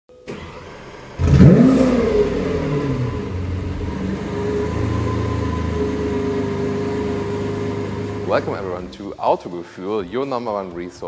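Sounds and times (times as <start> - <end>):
starter motor whir: 0.3 - 8.9
car engine revving and idling: 0.3 - 9.0.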